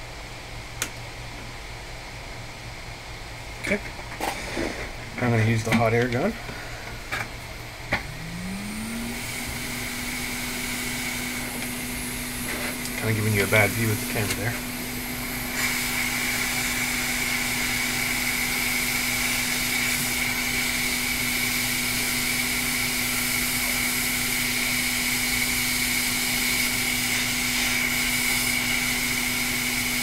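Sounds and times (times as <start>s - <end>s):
hot air gun blowing with whine: 6.4s - 30.0s.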